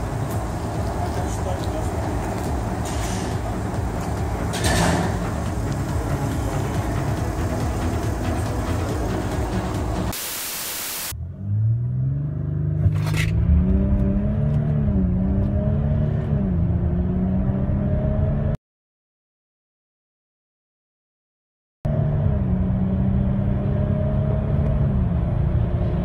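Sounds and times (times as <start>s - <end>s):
engine accelerating hard: 0.0s - 10.1s, 11.1s - 18.6s
low exhaust rumble: 0.0s - 10.1s
even hiss: 4.9s - 11.1s.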